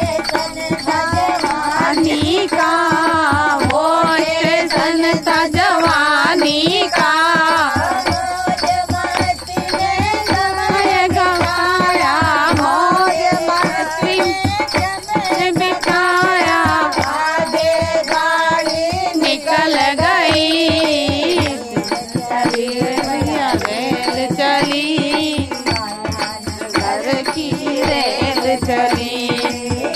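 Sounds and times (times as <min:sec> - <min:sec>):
hand drum beat: 0:00.0 - 0:29.9
women singing: 0:00.0 - 0:29.9
hand claps: 0:00.2 - 0:02.0, 0:08.6 - 0:10.6, 0:13.6 - 0:18.8, 0:21.3 - 0:27.4.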